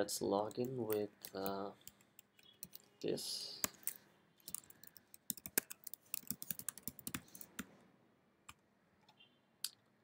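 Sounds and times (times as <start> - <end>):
typing on computer keyboard: 0.5 - 2.8, 3.6 - 7.7.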